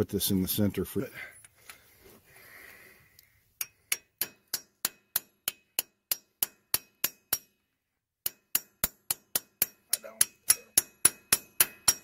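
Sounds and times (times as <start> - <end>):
hammer striking metal: 3.6 - 7.6, 8.2 - 12.0.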